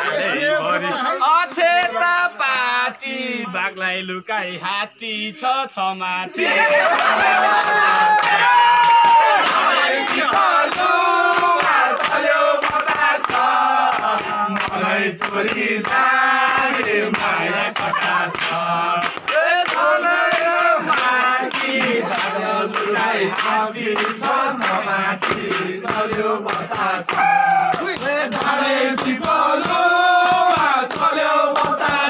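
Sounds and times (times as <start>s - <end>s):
men singing in chorus: 0.0s - 32.0s
hand clapping: 6.9s - 32.0s.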